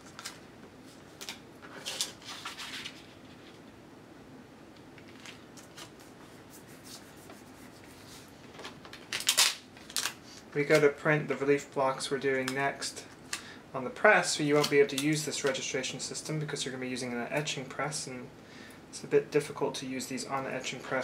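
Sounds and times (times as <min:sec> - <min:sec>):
tape and plastic film crinkling: 0:00.0 - 0:03.6, 0:08.5 - 0:10.9, 0:14.5 - 0:15.6.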